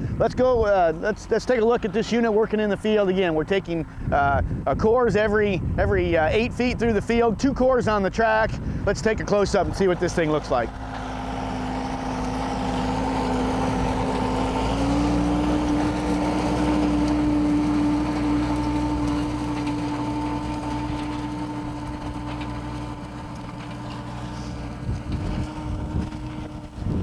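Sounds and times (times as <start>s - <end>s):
tractor diesel engine running: 0.0s - 27.0s
low thumps: 10.7s - 27.0s.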